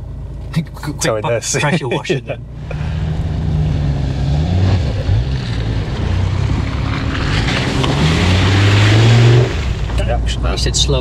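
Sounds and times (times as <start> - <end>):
off-road vehicle engine: 0.0 - 11.0
rushing noise: 2.5 - 10.3.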